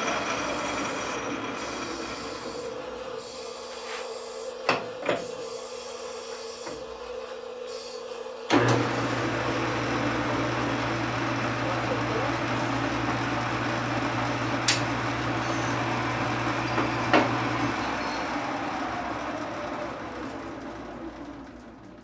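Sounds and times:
metal lathe running: 0.0s - 3.2s, 8.5s - 22.0s.

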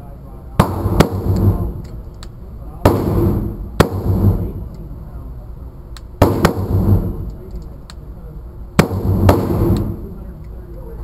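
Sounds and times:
rifle shots echoing indoors: 0.6s - 1.9s, 2.8s - 4.8s, 6.2s - 7.4s, 8.8s - 10.2s.

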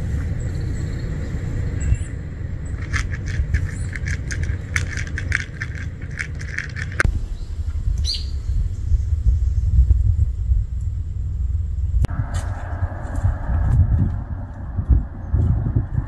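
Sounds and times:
low rumble: 0.0s - 16.0s
cat crunching dry kibble: 2.7s - 7.1s.

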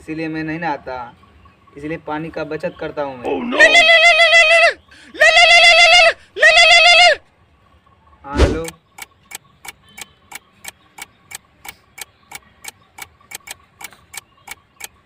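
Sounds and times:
clock ticking: 8.6s - 15.0s.

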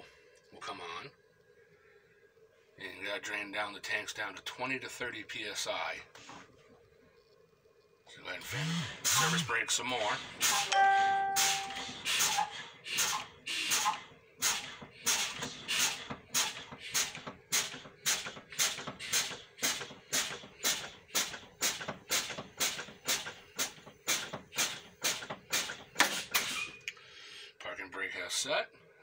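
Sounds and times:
air brakes hissing in bursts: 8.6s - 9.4s, 10.0s - 10.7s, 11.4s - 27.5s.

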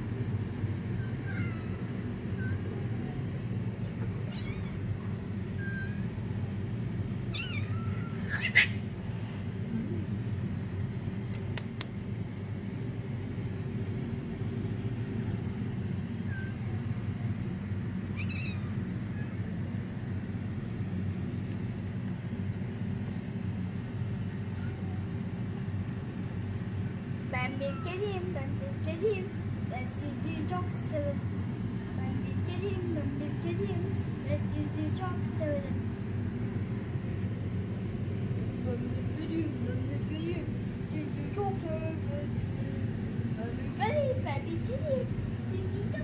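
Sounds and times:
low background hum: 0.0s - 46.0s
kittens meowing: 0.9s - 2.8s, 3.9s - 6.2s, 7.2s - 8.9s, 16.2s - 16.9s, 18.0s - 19.6s, 27.5s - 28.1s
sharp click: 11.3s - 12.0s.

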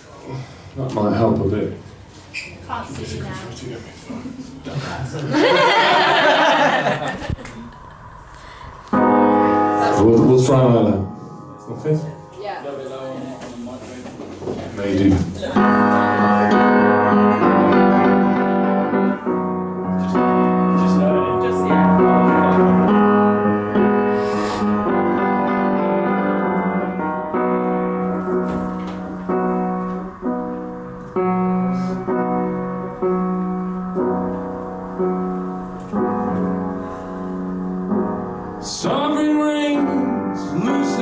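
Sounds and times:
solo piano chords: 7.8s - 14.0s, 15.5s - 41.0s.

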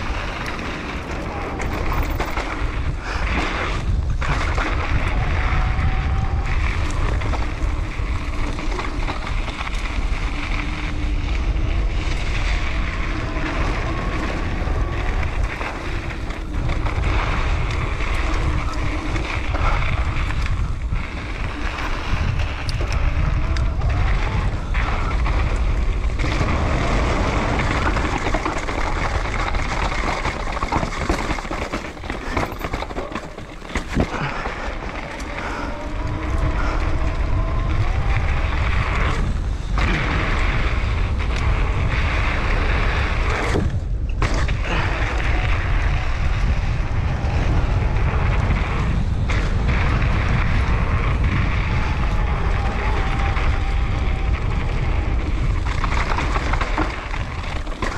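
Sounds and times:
bike knocks and rattles: 0.0s - 57.9s
bike tyres rolling over dirt: 0.0s - 57.9s
wind rushing over microphone: 0.0s - 57.9s.

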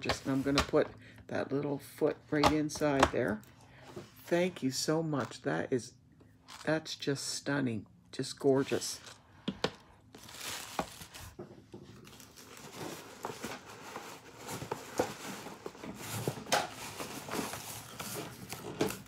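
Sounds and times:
packing material rustling: 10.1s - 11.4s, 12.0s - 19.0s.

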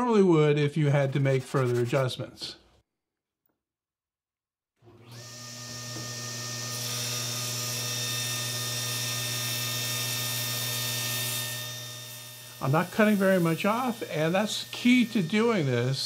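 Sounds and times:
table saw spinning up and humming: 4.8s - 16.0s.

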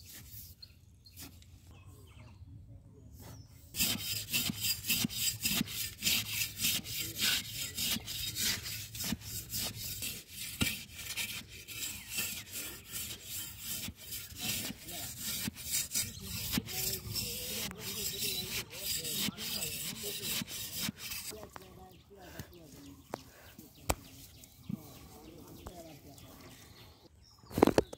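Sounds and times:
metal blade scraping wet clay: 3.8s - 21.4s.

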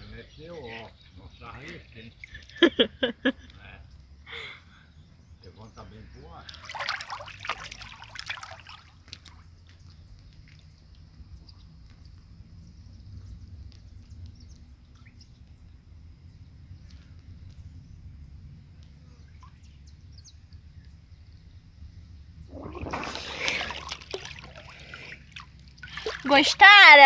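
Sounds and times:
water splashing and sloshing: 6.4s - 11.0s, 22.5s - 27.0s
muffled underwater rumble: 22.4s - 23.5s.

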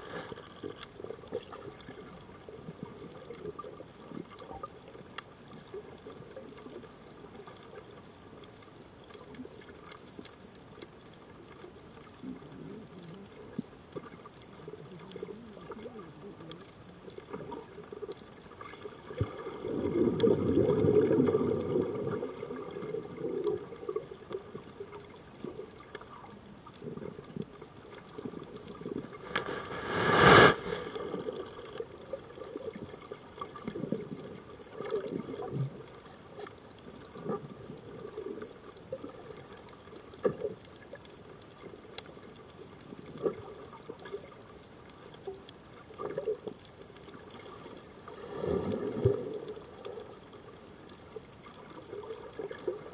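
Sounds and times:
underwater bubbling gurgle: 0.0s - 52.9s
loud rush of bubbles: 29.0s - 31.8s.

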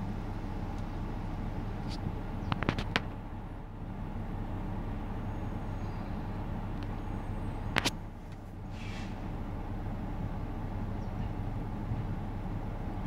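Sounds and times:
diesel engine low rumble: 0.0s - 13.0s
brief hiss: 8.7s - 9.3s.

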